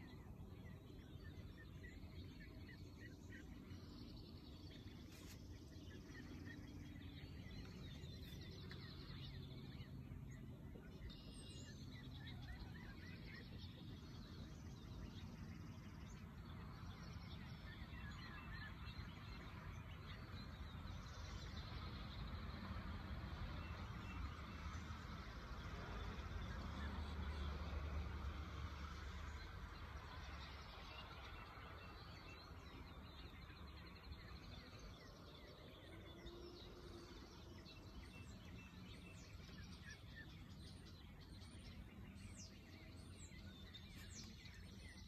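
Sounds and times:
low outdoor rumble: 0:00.0 - 0:45.0.

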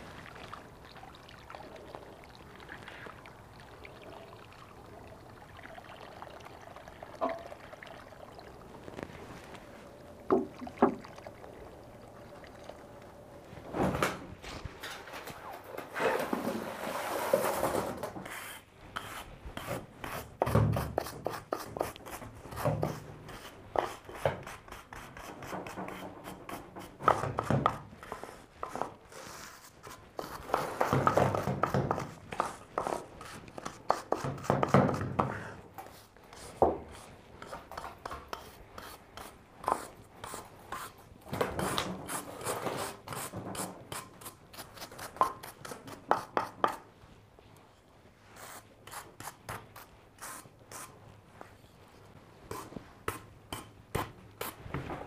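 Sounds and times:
rubbing and scraping handling: 0:13.5 - 0:55.0.

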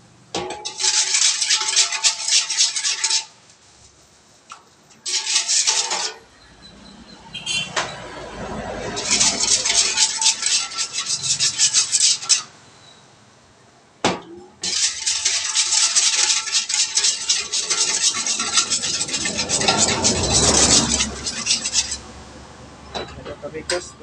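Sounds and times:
whisk beating in metal bowl: 0:00.6 - 0:03.4, 0:05.1 - 0:06.2, 0:08.6 - 0:12.5, 0:14.6 - 0:22.0.

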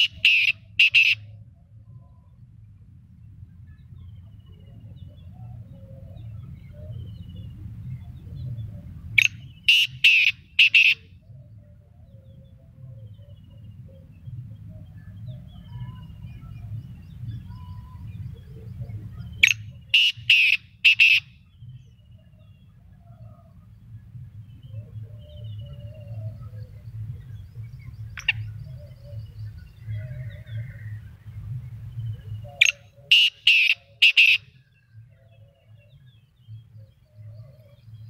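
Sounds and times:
francolin harsh call: 0:00.0 - 0:01.2, 0:09.7 - 0:11.1, 0:20.0 - 0:21.3, 0:33.1 - 0:34.5
small birds chirping: 0:00.0 - 0:01.2, 0:03.3 - 0:38.0
steady low rumble: 0:00.0 - 0:38.0.

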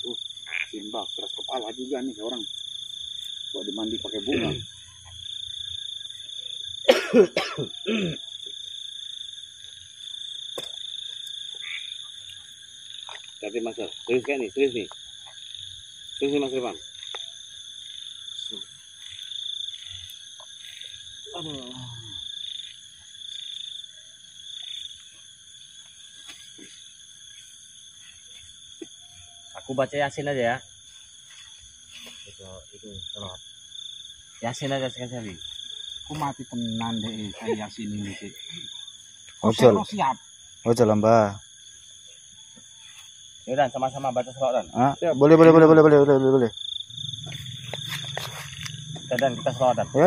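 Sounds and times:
pulsing frog call: 0:00.0 - 0:02.6, 0:10.6 - 0:14.1, 0:44.8 - 0:50.0
high insect drone: 0:00.0 - 0:50.0
person coughing: 0:06.9 - 0:08.2.

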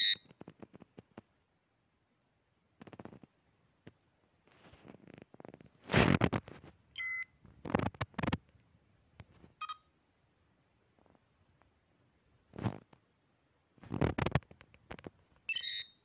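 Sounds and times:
held electronic beep: 0:15.5 - 0:16.0.

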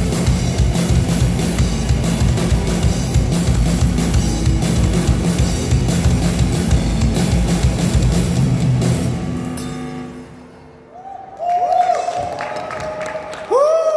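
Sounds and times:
live rock band playing: 0:00.0 - 0:10.4
held notes ringing out: 0:04.2 - 0:10.9.

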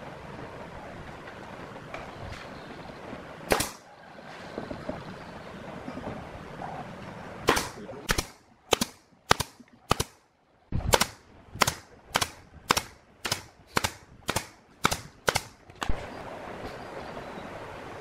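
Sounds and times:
nail gun firing: 0:07.5 - 0:10.2, 0:10.9 - 0:15.6.

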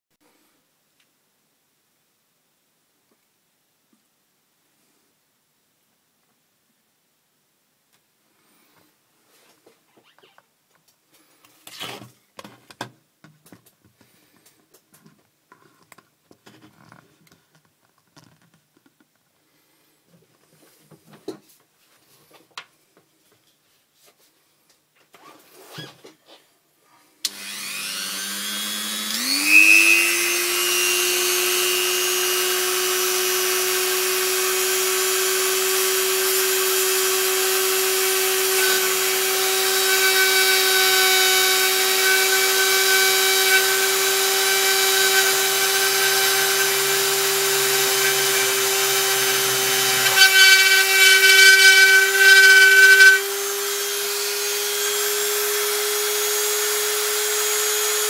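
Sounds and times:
rotary tool whining: 0:27.3 - 0:58.0.

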